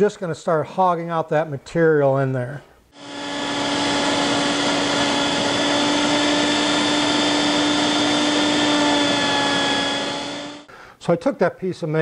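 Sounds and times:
router cutting wood: 0:03.0 - 0:10.7.

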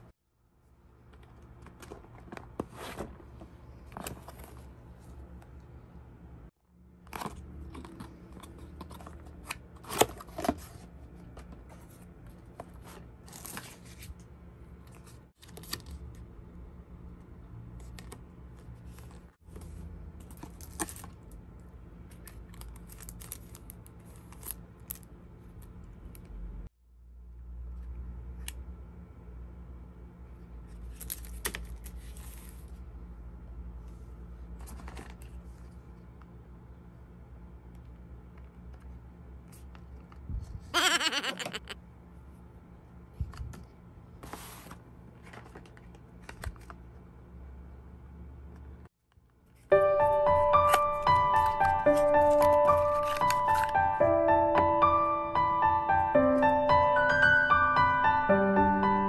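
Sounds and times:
cardboard packaging rustling: 0:50.8 - 0:54.0.

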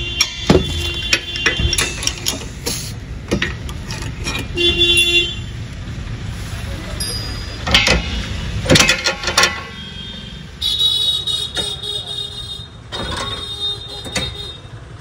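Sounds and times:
metal clamps clanking: 0:00.0 - 0:04.7, 0:07.1 - 0:09.8, 0:12.9 - 0:14.4
knocks: 0:00.2 - 0:02.2.

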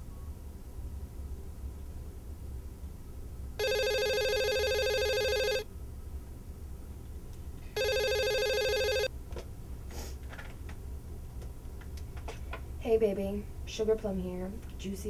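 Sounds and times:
electronic telephone ringing: 0:03.6 - 0:05.7, 0:07.8 - 0:09.1.

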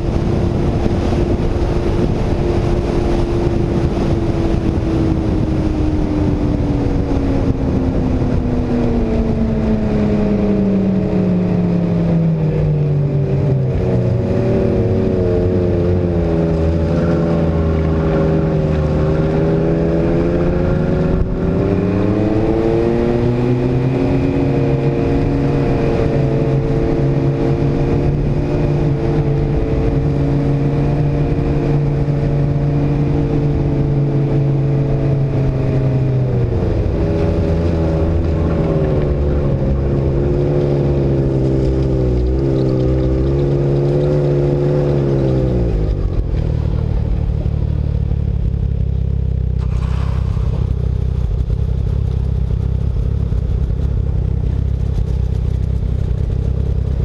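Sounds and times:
snowmobile engine running: 0:00.0 - 0:57.0.

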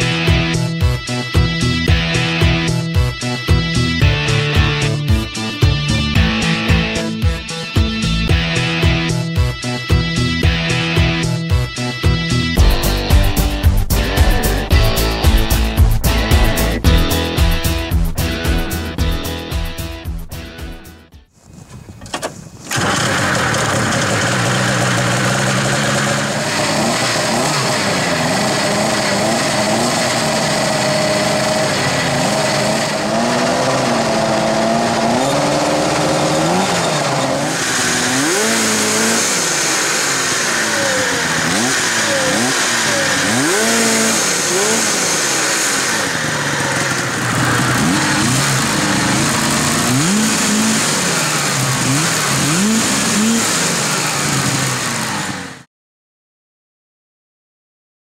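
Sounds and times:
snowmobile engine revving: 0:08.0 - 0:19.5, 0:22.3 - 0:55.7.

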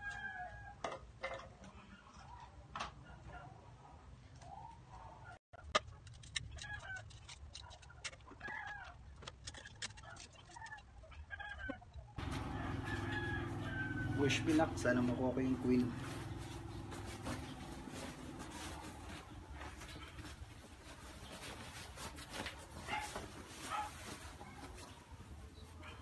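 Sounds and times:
chickens clucking: 0:11.4 - 0:26.0.

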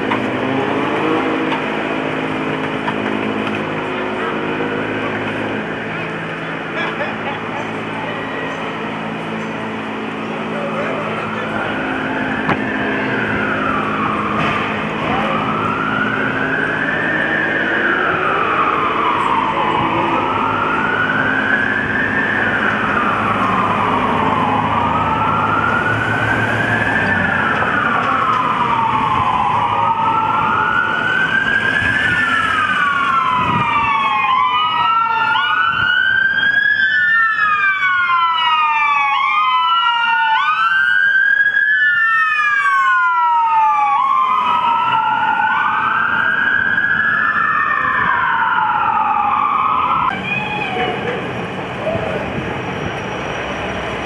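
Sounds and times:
emergency vehicle siren wailing: 0:00.0 - 0:54.0
street noise: 0:00.0 - 0:54.0
second siren wailing: 0:09.8 - 0:51.2.

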